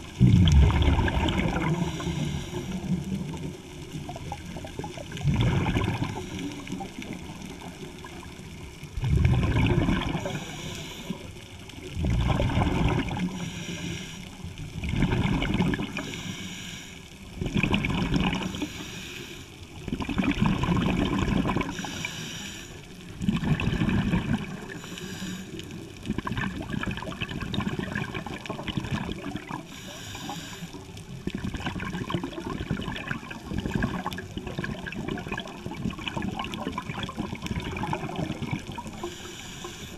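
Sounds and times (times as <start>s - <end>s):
exhaled bubbles rushing: 0.0s - 13.5s, 14.5s - 16.2s, 17.3s - 18.7s, 19.8s - 21.9s, 23.0s - 24.9s, 25.6s - 29.7s, 31.1s - 39.3s
regulator hiss on inhale: 1.6s - 3.1s, 6.0s - 7.6s, 10.1s - 11.6s, 13.2s - 14.5s, 15.9s - 17.3s, 18.4s - 19.8s, 21.7s - 23.2s, 24.6s - 26.0s, 29.6s - 31.2s, 38.9s - 39.9s.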